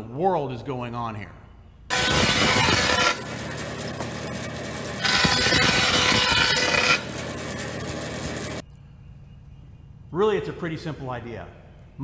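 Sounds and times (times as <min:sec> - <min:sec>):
board scraping against saw blade: 0:01.9 - 0:03.3, 0:05.0 - 0:07.2
band saw running: 0:01.9 - 0:08.6.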